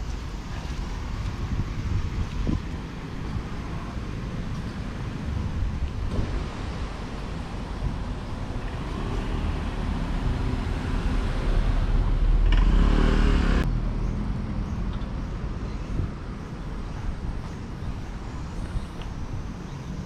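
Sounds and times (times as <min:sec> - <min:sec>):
street traffic: 0:00.0 - 0:20.0
vehicle passing close by: 0:06.1 - 0:14.7.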